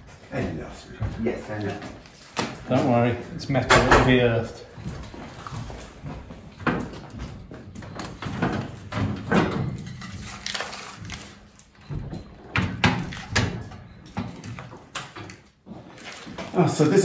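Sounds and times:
metal filters clunking and scraping: 2.9s - 4.6s.

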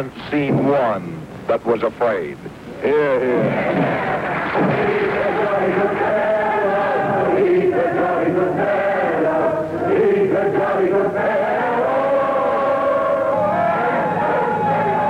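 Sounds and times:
crowd singing together: 3.1s - 15.0s.

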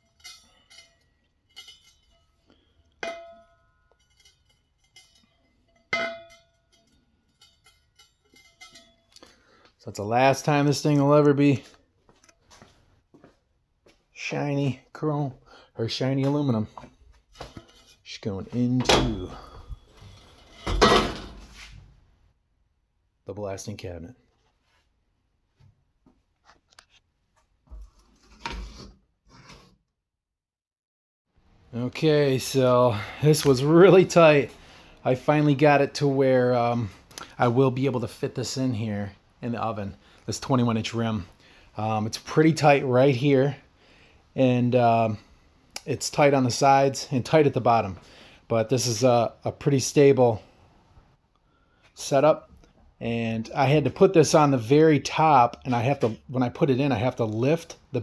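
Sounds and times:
metal rim knocked ringing: 3.0s - 4.3s, 4.9s - 9.0s.

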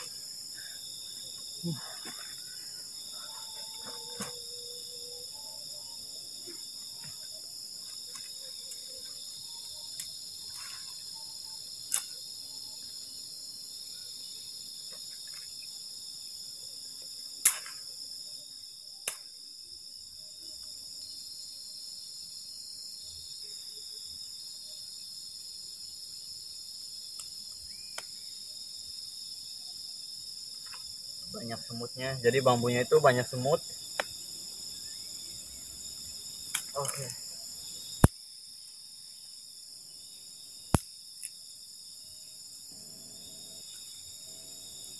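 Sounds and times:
night insects chorus: 0.0s - 44.9s
bamboo sticks snapping: 11.9s - 12.1s, 19.0s - 19.3s, 40.7s - 41.4s.

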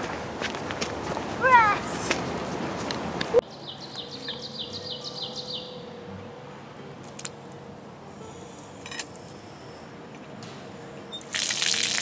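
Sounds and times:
songbird singing descending notes: 3.4s - 6.0s.

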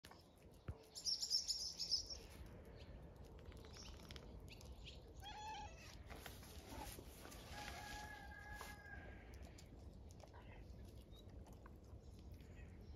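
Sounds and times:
birds chirping: 0.1s - 5.5s
cat meowing: 5.2s - 6.0s.

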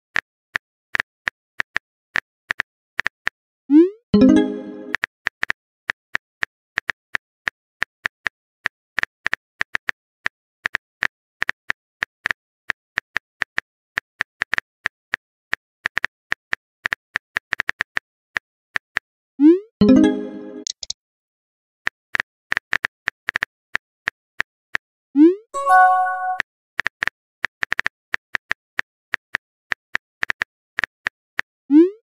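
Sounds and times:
phone keyboard typing clicks: 20.0s - 20.9s
short rising message tone: 25.6s - 26.4s.

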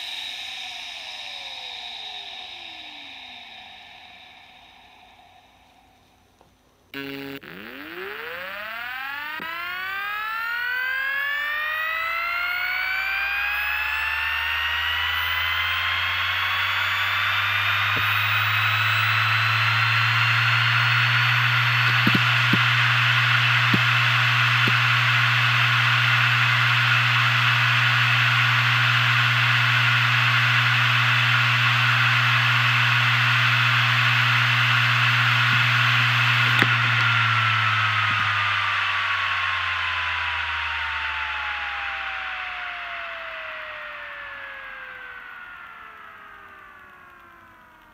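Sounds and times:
hard drive spinning up: 0.0s - 0.3s, 1.0s - 47.9s
low hum: 0.0s - 47.9s
short buzz: 7.0s - 10.5s
hard drive click: 17.9s - 19.0s, 21.0s - 25.0s.

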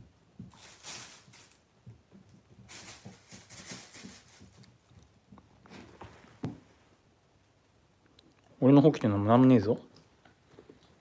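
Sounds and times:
plastic bags crinkling: 0.5s - 1.7s, 2.7s - 4.6s.

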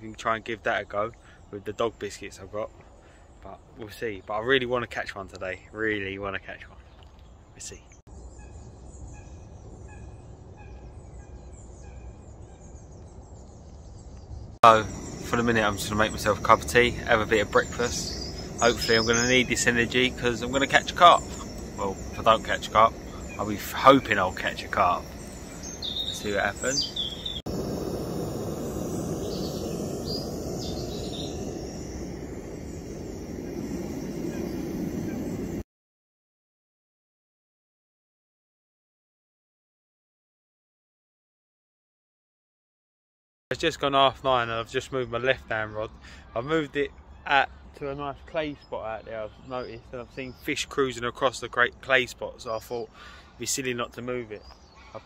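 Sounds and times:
faint high birdsong: 0.0s - 35.6s, 43.6s - 55.0s
bird repeating short call: 17.4s - 27.4s.

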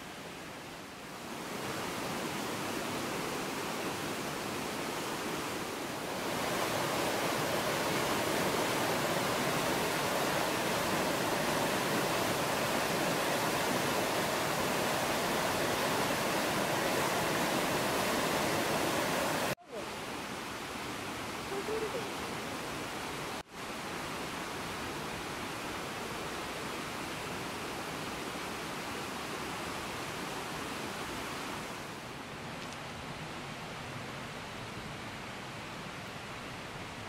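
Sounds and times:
outdoor background: 0.0s - 37.0s
small forest stream: 0.0s - 37.0s
river rapids rushing over rocks: 0.1s - 19.6s.

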